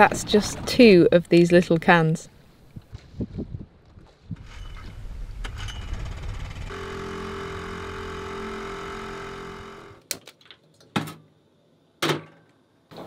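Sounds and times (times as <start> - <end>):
outboard motor running: 6.2 - 10.0.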